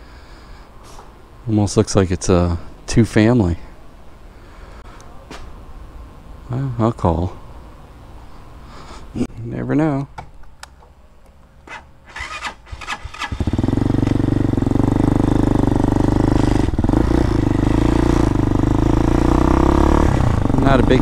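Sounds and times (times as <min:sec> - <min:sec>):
motorcycle engine running: 0:12.1 - 0:21.0.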